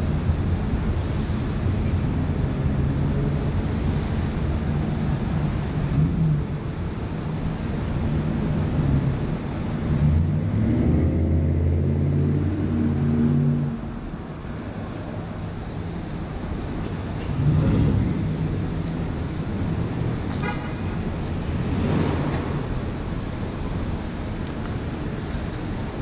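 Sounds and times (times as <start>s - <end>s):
motor vehicle engine rumble: 0.0s - 26.0s.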